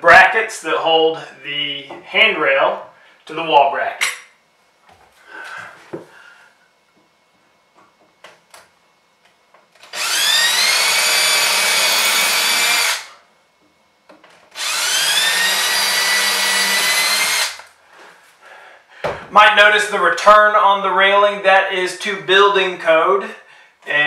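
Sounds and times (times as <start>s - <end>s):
cordless drill whining: 9.8s - 13.1s, 14.6s - 17.7s.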